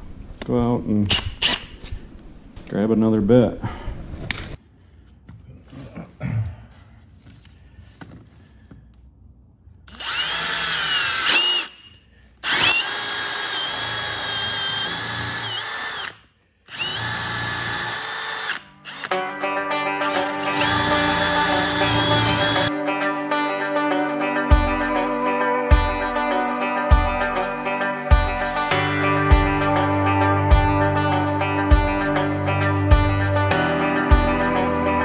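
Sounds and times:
cordless drill boring through siding: 0:09.9 - 0:19.1, 0:20.1 - 0:22.7
background music: 0:18.6 - 0:35.0.

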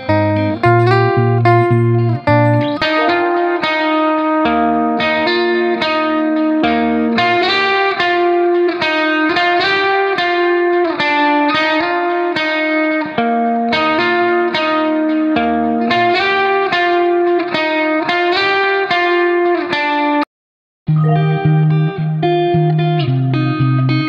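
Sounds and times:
plucked guitar music: 0:00.0 - 0:20.2, 0:20.9 - 0:24.0.

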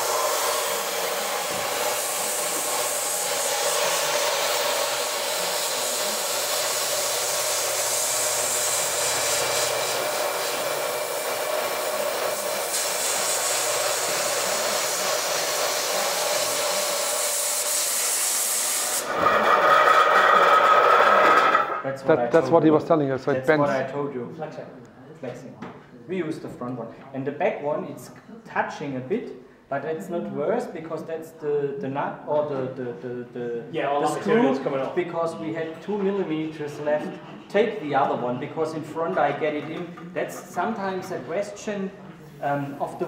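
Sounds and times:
milling machine hum: 0:00.0 - 0:17.5, 0:18.8 - 0:21.8
compressed air hissing: 0:00.0 - 0:19.3.

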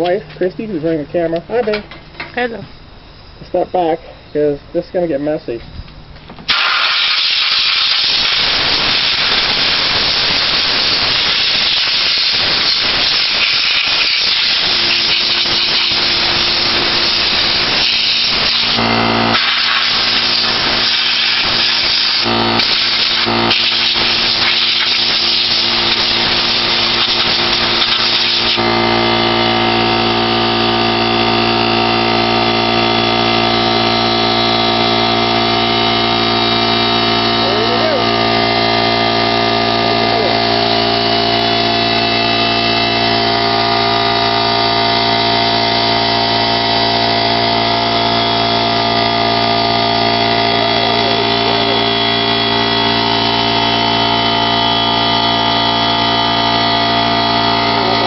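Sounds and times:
compressor motor humming: 0:00.0 - 0:58.0
compressed air hissing: 0:06.4 - 0:30.3.

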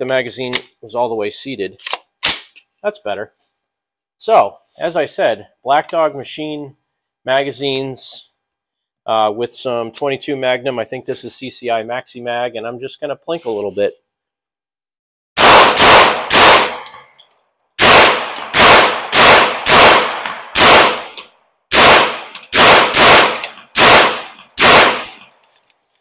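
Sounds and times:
rifle shots: 0:15.4 - 0:17.0, 0:17.8 - 0:25.3.

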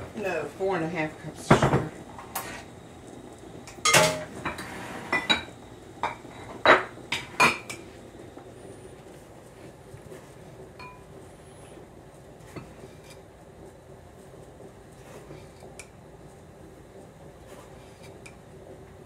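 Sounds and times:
ceramic and glass clinking: 0:10.8 - 0:11.0.

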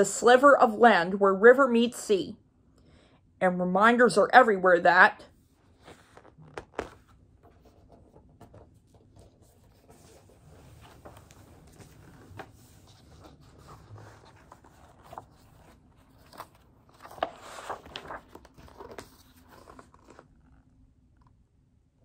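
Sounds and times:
paper rustling and crackling: 0:05.7 - 0:20.3.

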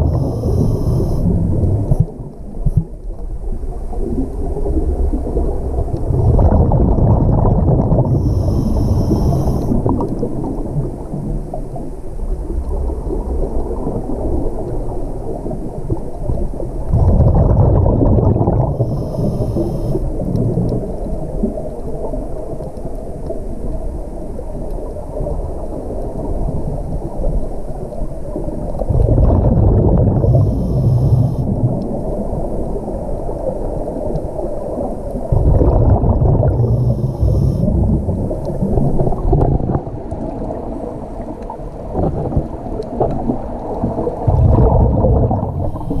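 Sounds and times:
diver breathing through regulator: 0:00.0 - 0:02.1, 0:07.9 - 0:09.9, 0:18.4 - 0:20.3, 0:30.0 - 0:31.6, 0:36.3 - 0:38.1, 0:45.3 - 0:46.0
air bubbles rumbling: 0:00.0 - 0:22.6, 0:28.2 - 0:46.0.

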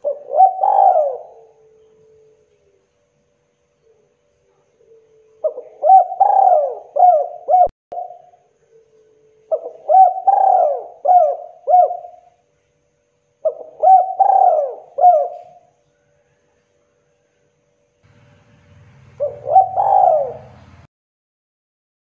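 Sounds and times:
dove cooing: 0:00.0 - 0:02.8, 0:03.8 - 0:12.3, 0:13.4 - 0:15.7, 0:19.0 - 0:20.8.

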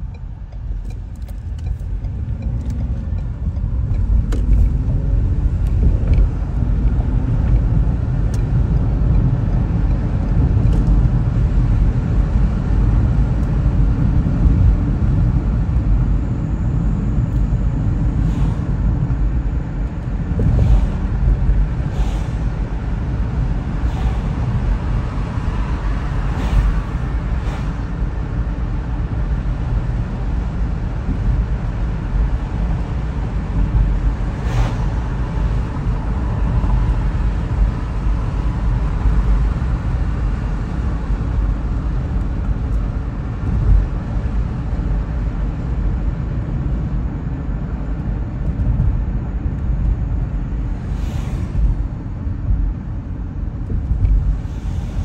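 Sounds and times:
car tyre and engine rumble: 0:00.0 - 0:55.0.

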